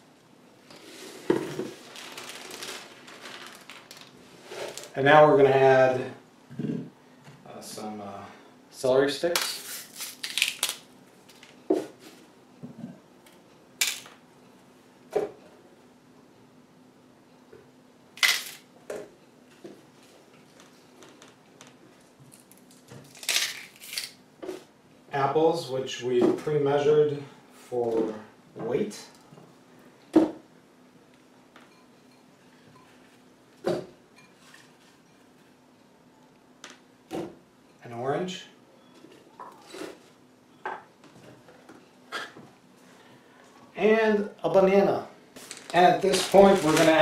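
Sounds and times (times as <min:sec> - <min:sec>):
celery stalks snapping: 0:09.4 - 0:10.8, 0:23.1 - 0:24.1.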